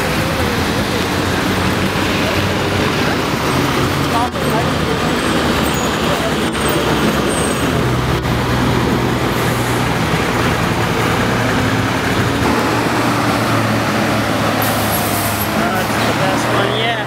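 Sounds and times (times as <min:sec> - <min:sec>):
diesel bus engines idling: 0:00.0 - 0:17.0.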